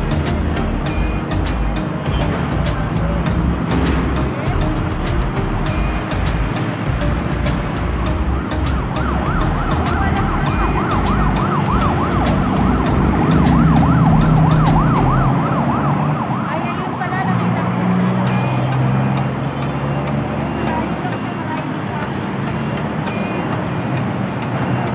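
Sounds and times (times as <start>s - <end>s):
street traffic rumble: 0.0s - 24.9s
vehicle engine hum: 0.0s - 24.9s
siren yelping: 8.0s - 17.3s.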